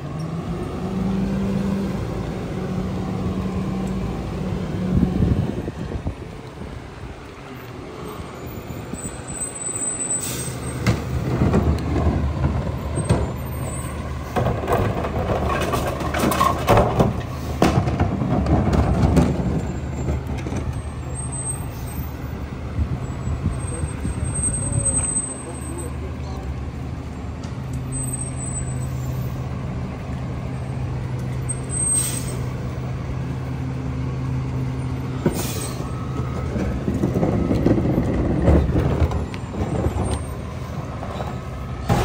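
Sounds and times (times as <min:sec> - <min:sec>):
air brake hiss: 0:10.0 - 0:10.8, 0:31.8 - 0:32.5, 0:35.3 - 0:36.0
cart banging: 0:10.8 - 0:20.9.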